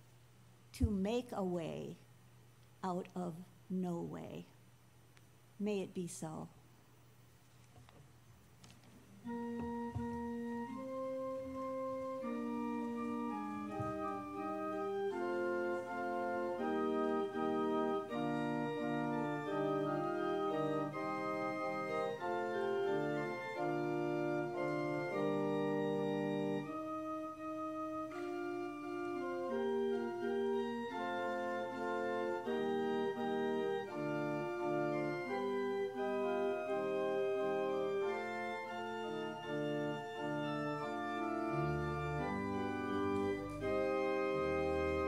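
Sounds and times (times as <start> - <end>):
organ playing sustained chords: 9.2 - 45.0.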